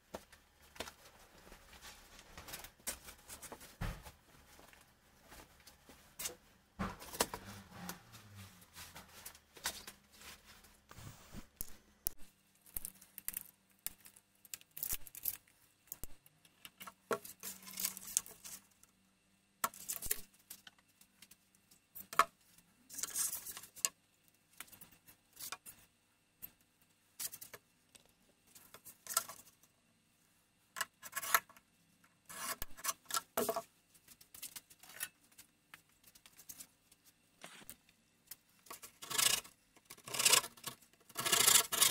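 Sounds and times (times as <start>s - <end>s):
board and tools scraping: 32.3s - 33.0s, 38.9s - 41.9s.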